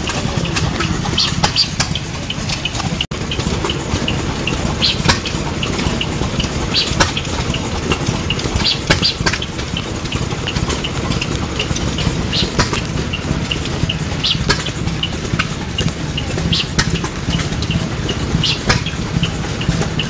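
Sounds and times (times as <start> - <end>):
tractor engine idling: 0.0 - 20.0
sharp clicks: 4.5 - 20.0.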